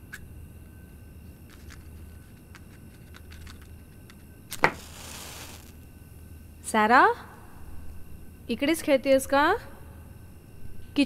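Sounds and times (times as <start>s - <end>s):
match striking and flaring: 4.5s - 5.8s.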